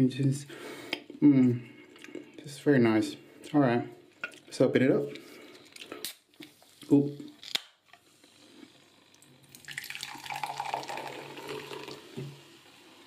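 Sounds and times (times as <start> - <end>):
soda fizzing into a glass: 8.9 - 13.0.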